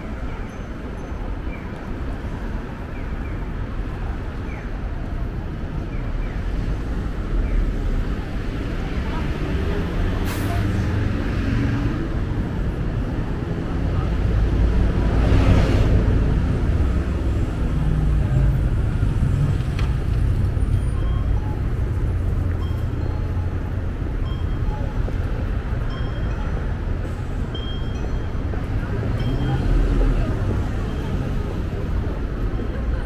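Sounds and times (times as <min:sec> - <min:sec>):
traffic noise: 0:00.0 - 0:33.0
people talking: 0:08.8 - 0:11.1, 0:28.0 - 0:33.0.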